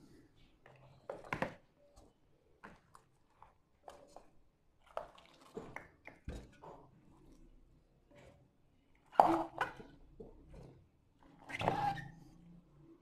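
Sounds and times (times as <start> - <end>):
wet handling sounds: 2.6 - 6.5.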